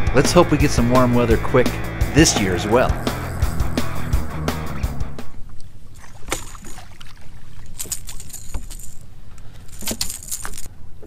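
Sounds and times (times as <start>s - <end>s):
low rumble: 0.6s - 5.4s
fish thrashing and splashing: 5.8s - 10.7s.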